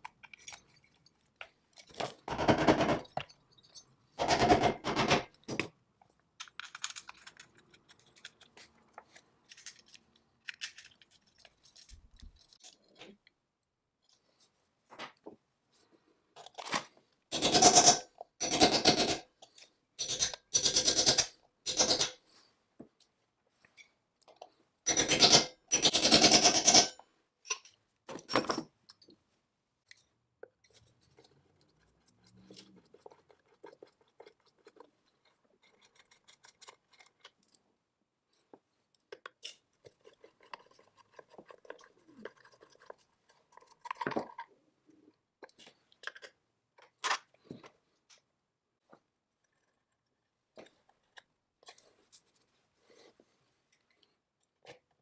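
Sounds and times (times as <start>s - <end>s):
handling small metal parts: 0.0s - 2.3s, 5.4s - 13.0s.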